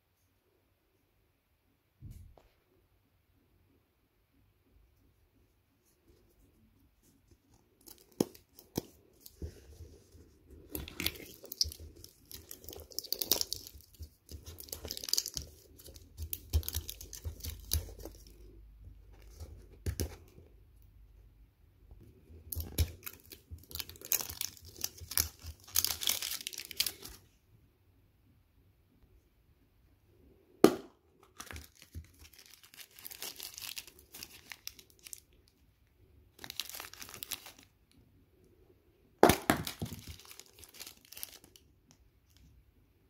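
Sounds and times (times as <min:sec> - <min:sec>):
plastic wrap crinkling: 0:07.7 - 0:18.6, 0:22.5 - 0:27.3, 0:30.7 - 0:35.6, 0:36.3 - 0:37.8, 0:39.2 - 0:42.4.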